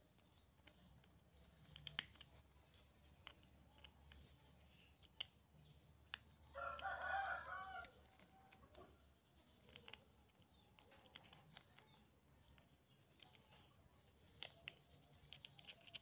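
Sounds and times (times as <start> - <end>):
rooster crowing: 6.5 - 7.9.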